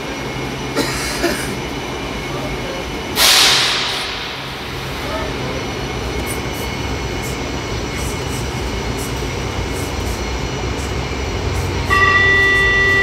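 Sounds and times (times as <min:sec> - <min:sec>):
train standing with low hum: 0:00.0 - 0:13.0
high-pitched door warning tone: 0:11.8 - 0:13.0.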